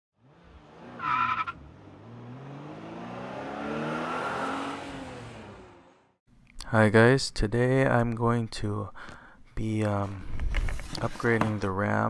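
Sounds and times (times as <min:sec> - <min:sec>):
car engine passing by: 0:00.2 - 0:06.2.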